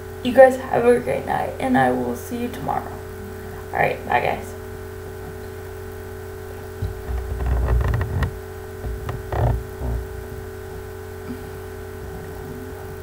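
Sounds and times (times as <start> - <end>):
electrical hum: 0.0 - 13.0
deep bumps and rubbing: 6.8 - 11.1.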